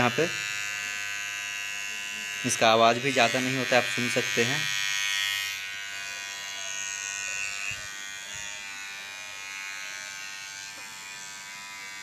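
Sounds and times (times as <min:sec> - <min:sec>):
beard trimmer buzzing: 0:00.0 - 0:12.0.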